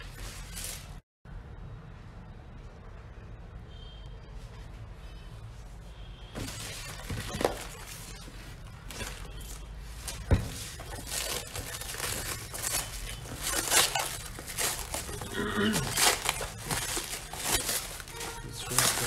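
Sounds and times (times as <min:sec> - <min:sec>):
cling film crinkling: 0:06.4 - 0:19.0.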